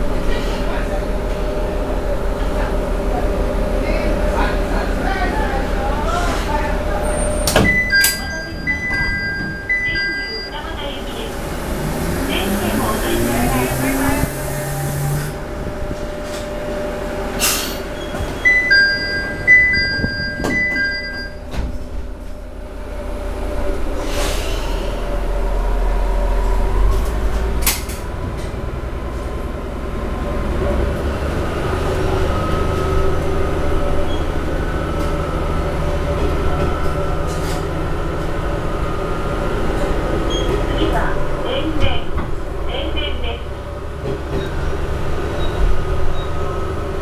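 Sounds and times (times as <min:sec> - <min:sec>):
railcar diesel engine rumbling: 0:00.0 - 0:47.0
two-tone electronic chime: 0:18.5 - 0:21.4.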